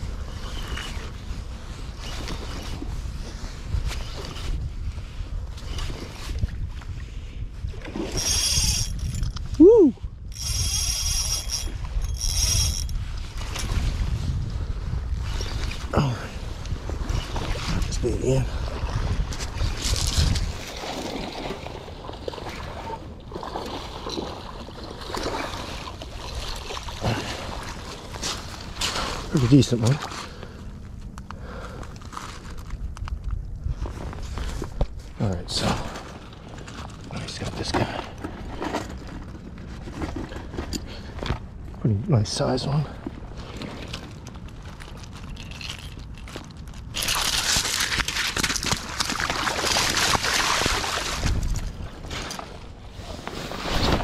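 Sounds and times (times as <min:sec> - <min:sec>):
water sloshing and splashing: 0:15.1 - 0:54.0
gravel crunching and crackling: 0:23.5 - 0:54.0.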